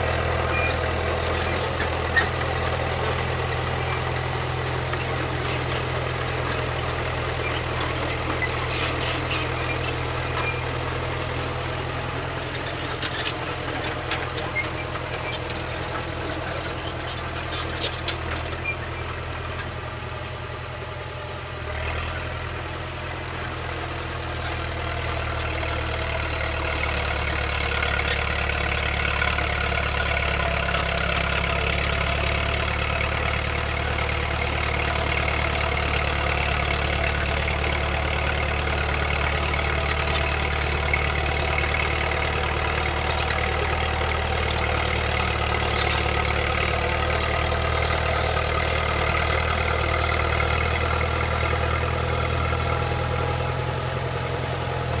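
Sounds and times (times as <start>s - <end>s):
dozer diesel engine running: 0.0s - 55.0s.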